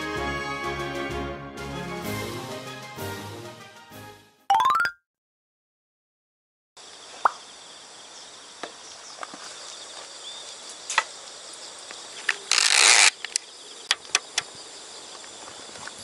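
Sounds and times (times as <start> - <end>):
insects buzzing: 6.8 - 16.0.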